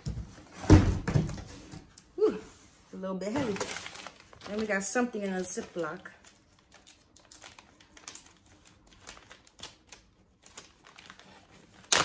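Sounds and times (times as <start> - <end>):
plastic bag crinkling: 3.2 - 12.0.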